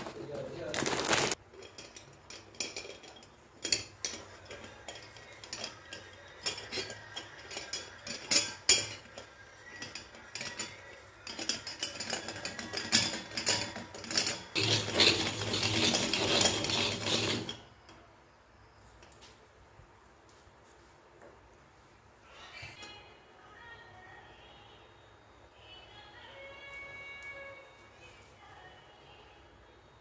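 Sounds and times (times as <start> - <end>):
coconut rasping on serrated blade: 9.3 - 17.7.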